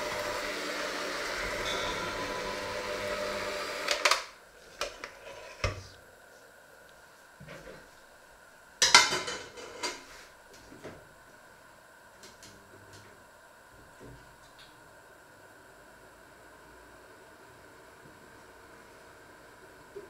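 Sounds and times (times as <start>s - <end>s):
electric hand mixer running: 0.0s - 4.4s
dishes clattering: 8.8s - 10.1s.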